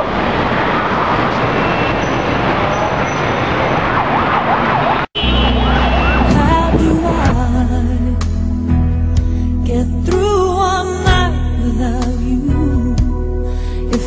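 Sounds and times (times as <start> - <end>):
siren wailing: 0.0 - 7.4
road traffic: 0.0 - 7.6
music with sustained notes: 5.2 - 14.0.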